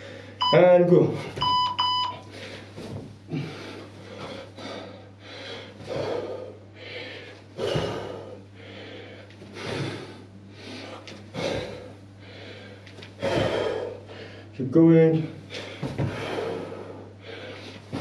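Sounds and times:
man breathing hard: 0.0 - 0.4, 2.2 - 14.6, 15.4 - 18.0
feet thudding on floor: 2.7 - 3.2, 15.6 - 16.4, 17.8 - 18.0.

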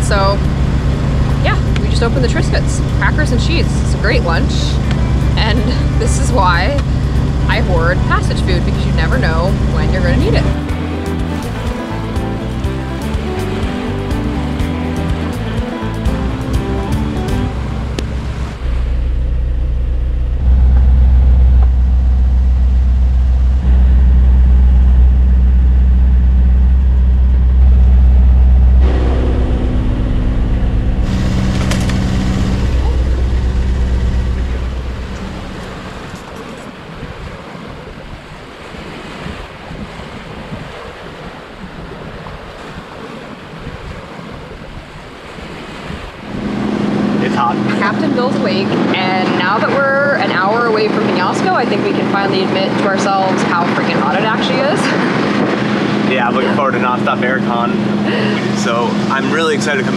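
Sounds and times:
diesel engine droning: 0.0 - 38.0, 46.2 - 59.9
water rushing along boat hull: 0.0 - 59.9
wind buffeting microphone: 17.4 - 59.9.

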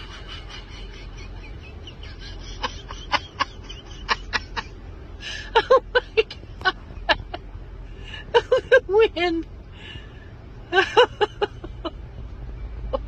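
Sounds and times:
stifled laughter: 0.0 - 7.4
low steady hum: 0.0 - 13.0.

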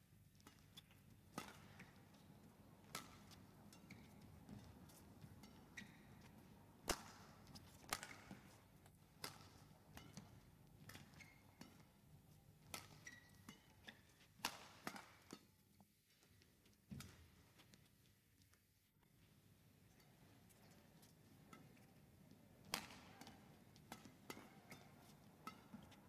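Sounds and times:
rackets striking shuttlecock: 0.4 - 2.2, 2.8 - 12.0, 12.6 - 15.5, 22.6 - 26.0
shoe squeaks on court floor: 5.7 - 6.2, 11.0 - 11.6, 12.8 - 14.3.

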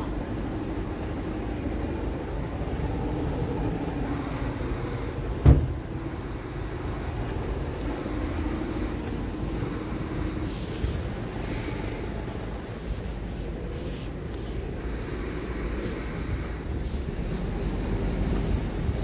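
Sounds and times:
diesel engine idling: 0.0 - 19.0
sharp thump: 5.4 - 5.8.

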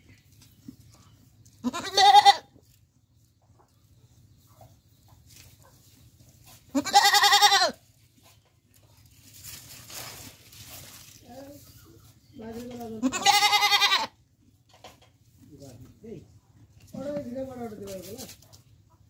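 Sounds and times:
goat bleating: 1.6 - 2.6, 6.7 - 7.9, 12.6 - 14.2.

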